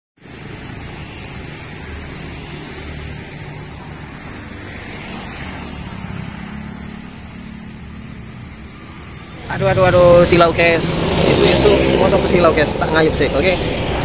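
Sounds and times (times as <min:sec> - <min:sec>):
street traffic passing: 0:00.2 - 0:14.0
motorbike engine passing close: 0:09.4 - 0:14.0.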